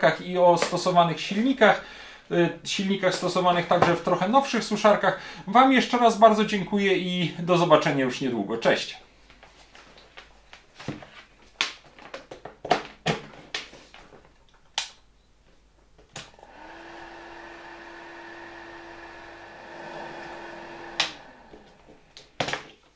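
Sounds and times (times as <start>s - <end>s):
hair dryer running: 16.3s - 22.2s.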